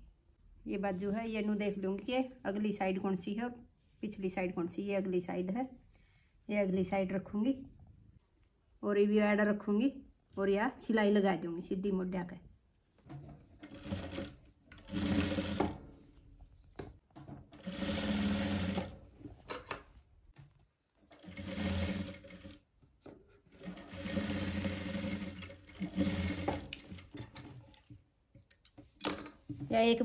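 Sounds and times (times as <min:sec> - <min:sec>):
sewing machine stitching: 0:13.5 - 0:15.8, 0:17.5 - 0:19.0, 0:21.1 - 0:22.6, 0:23.5 - 0:27.7.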